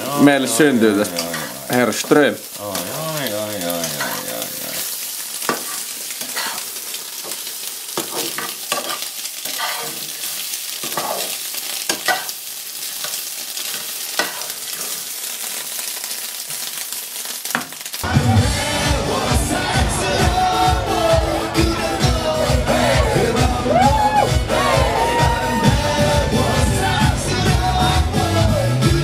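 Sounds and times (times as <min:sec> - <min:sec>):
food sizzling in a frying pan: 0:00.0 - 0:29.0.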